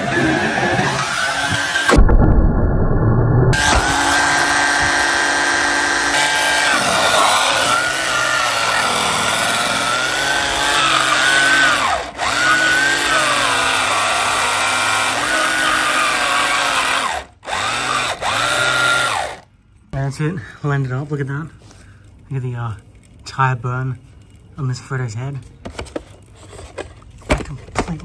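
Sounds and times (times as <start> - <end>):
electric motor whining: 0.0 - 2.0, 3.6 - 19.4.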